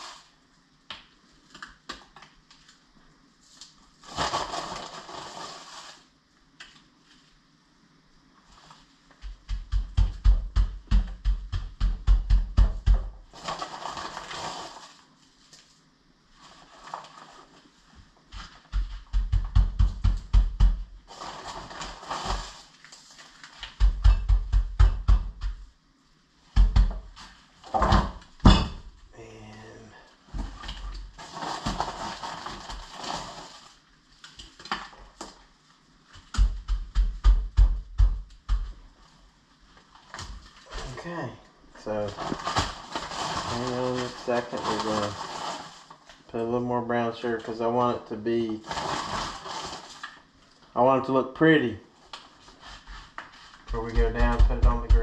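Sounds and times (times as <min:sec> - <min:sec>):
rubbing and scraping on meat: 0:00.0 - 0:00.4, 0:02.5 - 0:06.1, 0:13.3 - 0:19.5, 0:20.4 - 0:23.8, 0:30.8 - 0:34.6, 0:41.8 - 0:46.2, 0:48.4 - 0:50.1
hand patting raw meat: 0:09.1 - 0:13.1, 0:18.3 - 0:21.0, 0:36.2 - 0:38.8
sugar bag crinkling: 0:13.3 - 0:15.8, 0:21.1 - 0:23.6, 0:42.0 - 0:46.2, 0:48.4 - 0:50.3.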